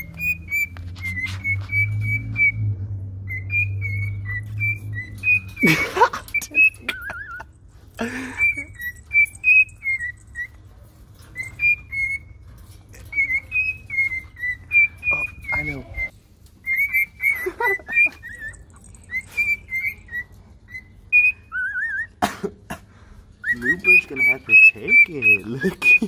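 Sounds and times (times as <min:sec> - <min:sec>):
cockatiel whistling a tune: 0:00.0 - 0:05.8, 0:08.3 - 0:10.6, 0:11.3 - 0:12.4, 0:13.1 - 0:22.2, 0:23.4 - 0:26.0.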